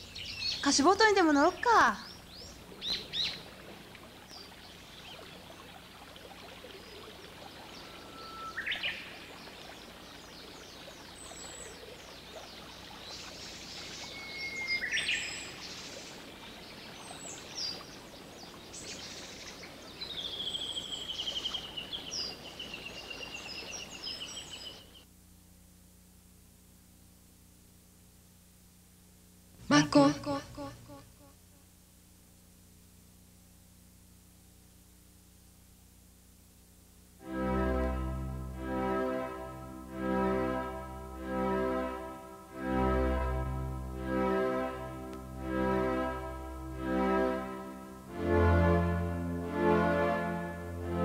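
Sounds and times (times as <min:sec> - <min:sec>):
birds singing: 0:00.0 - 0:25.0
outdoor hiss: 0:00.0 - 0:51.0
bird trill: 0:06.9 - 0:10.1, 0:13.1 - 0:15.8.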